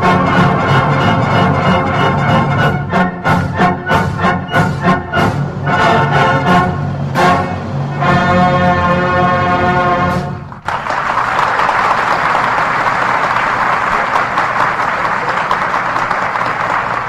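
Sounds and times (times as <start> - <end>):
brass chord from band: 0.0 - 10.5
audience applause: 10.5 - 17.0.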